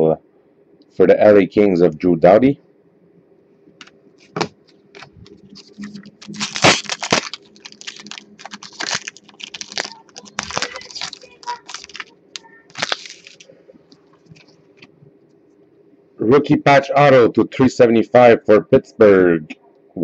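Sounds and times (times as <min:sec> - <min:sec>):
wrapper tearing and crinkling: 0:05.0 - 0:13.5.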